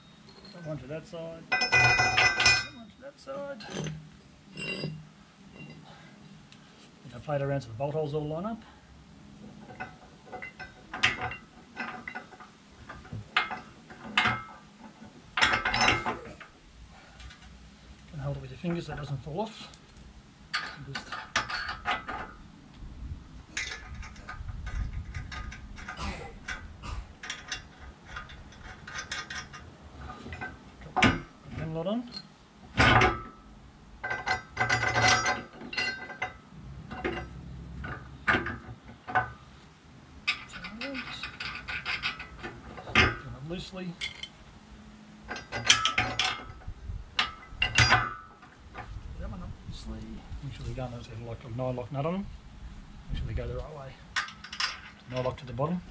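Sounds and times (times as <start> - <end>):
steel plate clanking on metal: 1.5 - 2.9, 3.6 - 5.9, 9.4 - 16.5, 20.5 - 22.4, 23.5 - 39.5, 40.2 - 43.4, 45.2 - 48.9, 54.2 - 55.7.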